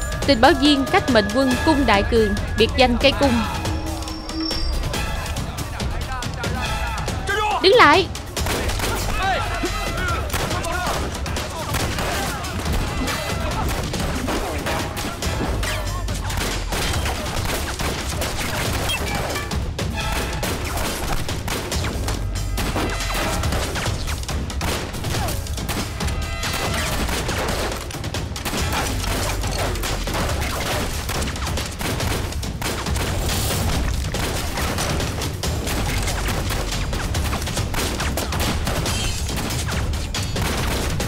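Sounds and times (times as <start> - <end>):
dramatic action film music: 0.0 - 41.0
pistol and rifle shots: 26.5 - 41.0.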